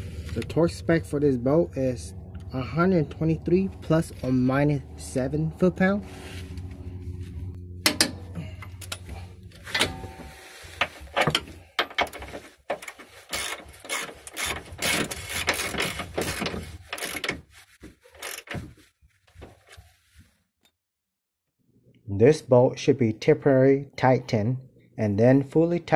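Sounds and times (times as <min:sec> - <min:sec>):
low steady hum: 0:00.0 - 0:17.2
ratchet wrench clicking: 0:13.3 - 0:17.3, 0:18.2 - 0:18.6.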